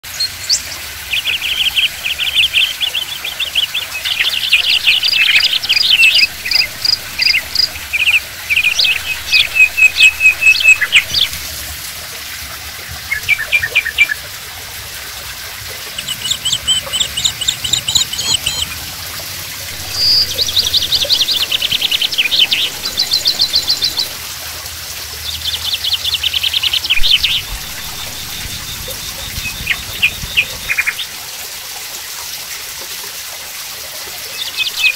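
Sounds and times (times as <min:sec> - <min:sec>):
water trickling into pool: 0:00.0 - 0:34.9
small birds chirping: 0:00.1 - 0:11.5, 0:15.8 - 0:18.9, 0:19.7 - 0:24.2, 0:25.2 - 0:31.1.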